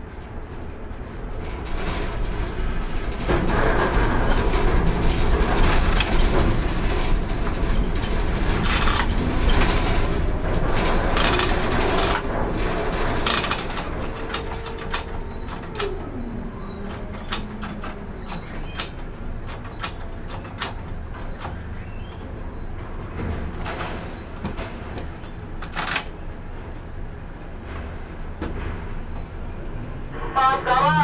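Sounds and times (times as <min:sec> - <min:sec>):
crane rumbling with rattles and clanks: 0:00.0 - 0:31.0.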